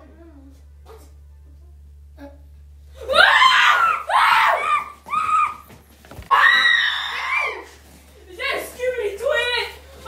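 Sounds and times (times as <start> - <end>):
boys screaming: 3.0 - 5.7, 6.3 - 7.8.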